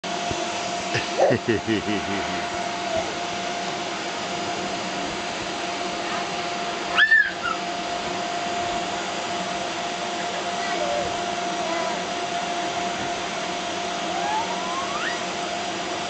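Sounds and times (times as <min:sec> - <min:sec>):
blower fan whirring: 0:00.0 - 0:16.0
child squealing: 0:06.9 - 0:07.6.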